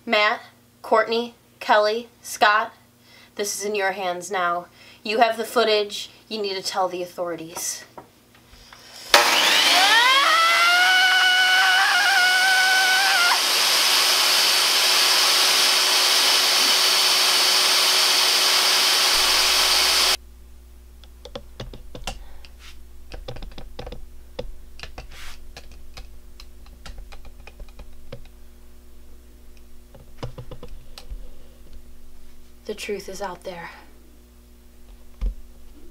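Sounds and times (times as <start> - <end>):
electric miter saw motor whining: 8.8 - 20.2.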